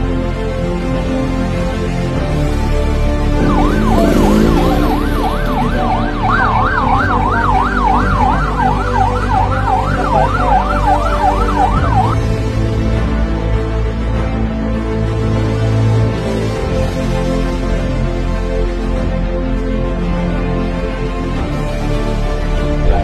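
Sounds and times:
background music: 0.0s - 23.0s
police siren yelping: 3.4s - 12.2s.

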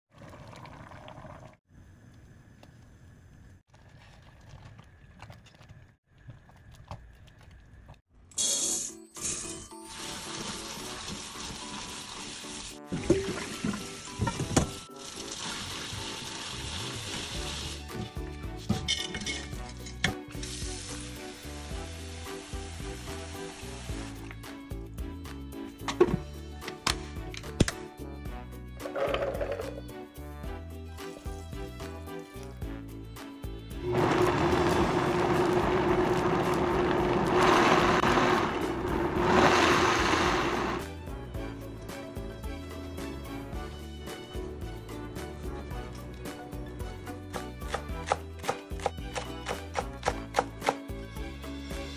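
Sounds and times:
beans and water churning: 3.7s - 8.0s, 33.8s - 40.8s
tap water running into a strainer: 9.8s - 17.9s
blender motor whine: 33.8s - 40.8s.

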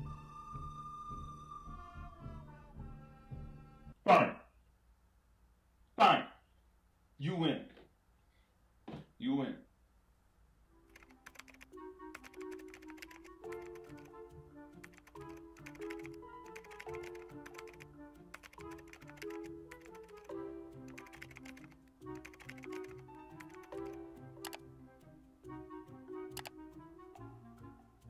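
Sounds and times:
background music: 0.0s - 4.0s, 10.7s - 28.0s
typing on a laptop keyboard: 10.9s - 14.2s, 14.8s - 24.6s, 26.4s - 26.6s.

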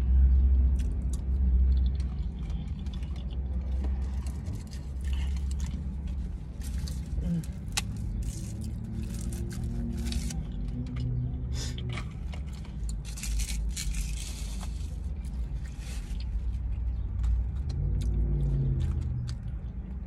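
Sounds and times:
chewing: 0.7s - 11.2s, 15.6s - 20.0s.

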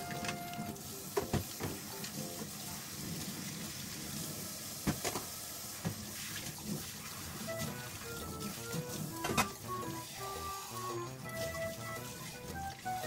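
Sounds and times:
background music: 0.0s - 2.9s, 7.4s - 13.0s
tap water running into sink: 0.0s - 13.0s.

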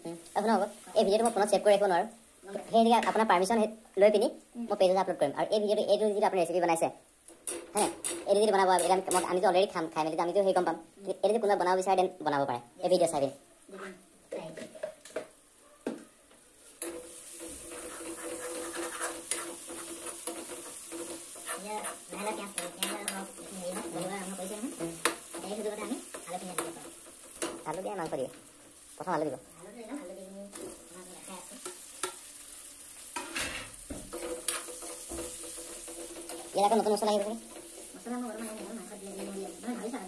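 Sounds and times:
food sizzling in a pan: 0.0s - 15.6s, 16.4s - 40.0s
metal spoon scraping pan: 16.8s - 27.6s, 33.2s - 39.6s.

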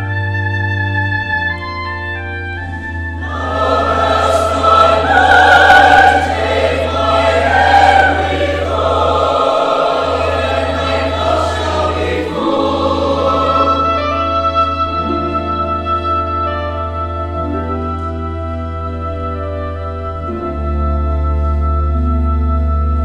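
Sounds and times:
instrumental accompaniment: 0.0s - 23.0s
choir singing: 3.2s - 14.3s.

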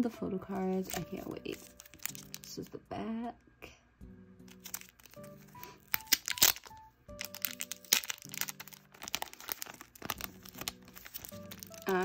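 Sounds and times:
background music with held notes: 0.0s - 12.0s
packaging crinkling: 0.7s - 2.6s, 4.5s - 12.0s.

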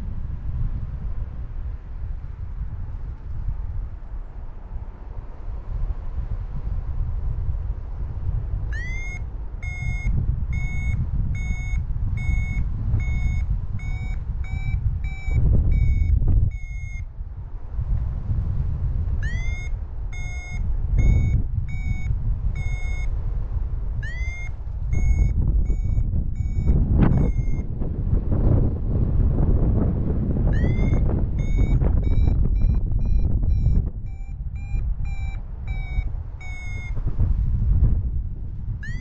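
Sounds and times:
wind on microphone: 0.0s - 39.0s
variometer high beeps: 8.7s - 17.1s, 19.2s - 23.1s, 24.0s - 27.7s, 30.5s - 37.0s.

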